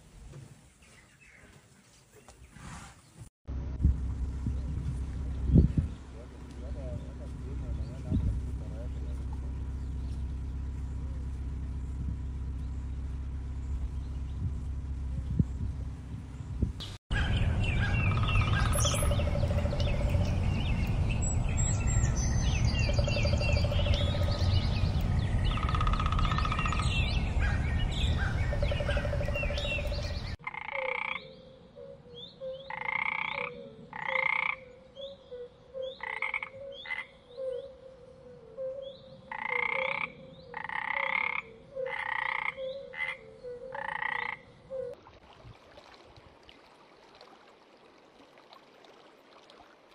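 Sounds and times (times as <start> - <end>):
tree frog croaking: 17.8 - 20.9, 22.8 - 31.4, 32.4 - 45.0.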